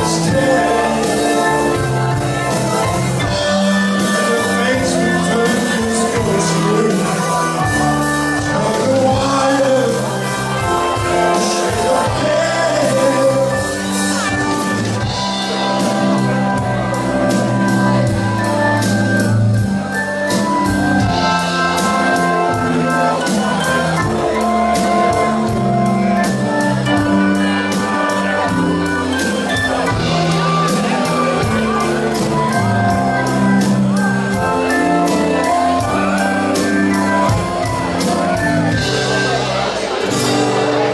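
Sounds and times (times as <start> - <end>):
person singing: 0.0 - 18.4
acoustic guitar: 0.0 - 40.9
drums with steady beat: 0.0 - 40.9
electric guitar: 0.0 - 40.9
keyboard: 0.0 - 40.9.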